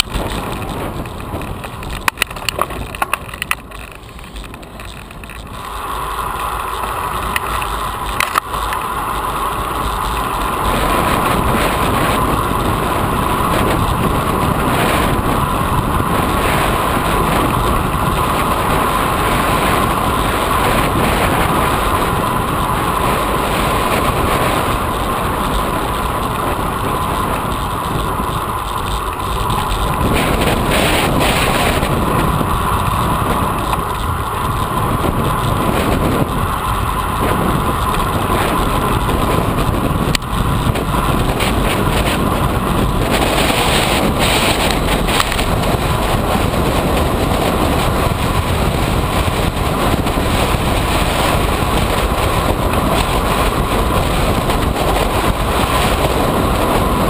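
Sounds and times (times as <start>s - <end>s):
wind rushing over microphone: 0.0s - 57.0s.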